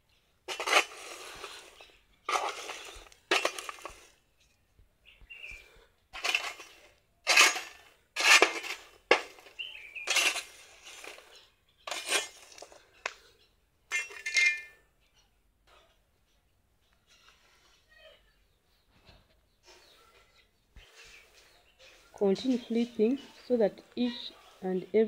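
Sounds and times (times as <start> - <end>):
stick scraping on iron sheet: 0.5 - 4.0, 6.2 - 9.5, 10.1 - 11.2, 11.9 - 12.6.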